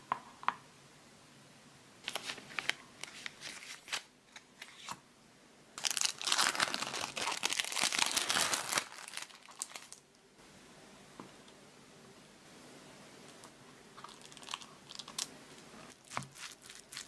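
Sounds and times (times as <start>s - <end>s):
plastic packaging crinkling: 2.0s - 4.1s, 5.8s - 10.0s, 14.0s - 15.3s, 15.9s - 17.0s.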